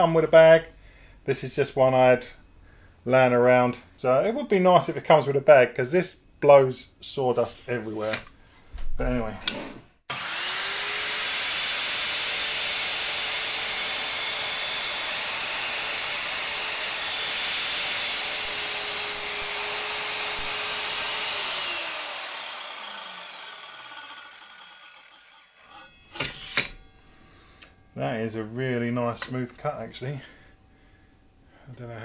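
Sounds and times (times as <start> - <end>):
mitre saw cutting wood: 10.1 - 26.9.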